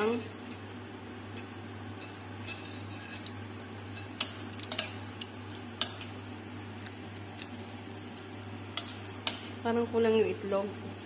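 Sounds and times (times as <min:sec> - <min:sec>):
steady low hum: 0:00.0 - 0:11.0
utensils clinking against dishes: 0:03.9 - 0:05.2.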